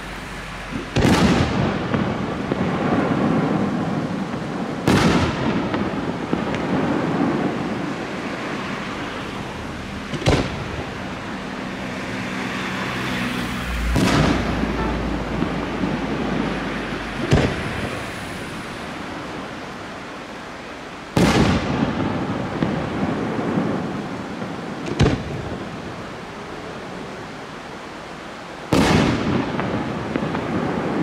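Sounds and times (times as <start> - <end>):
firework bangs with echo: 0.7 - 9.2, 10.0 - 11.2, 13.8 - 19.7, 21.1 - 26.0, 28.7 - 31.0.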